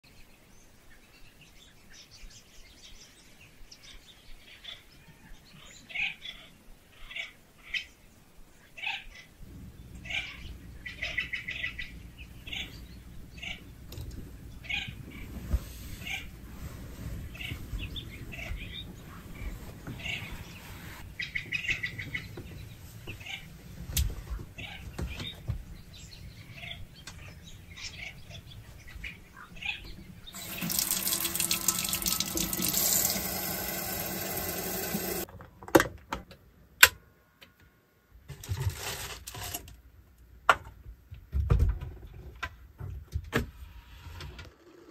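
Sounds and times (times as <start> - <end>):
birds chirping: 0.1 - 35.3.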